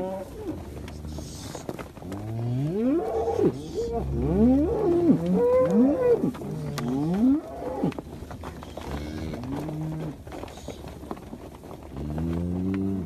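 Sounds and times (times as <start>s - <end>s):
cattle mooing: 0.0s - 10.2s.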